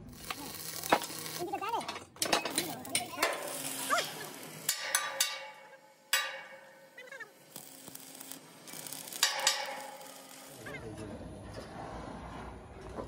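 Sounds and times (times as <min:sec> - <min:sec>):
welding arc crackling and hissing: 0:00.0 - 0:11.1
sharp metal knocks: 0:04.7 - 0:06.9, 0:09.1 - 0:10.2.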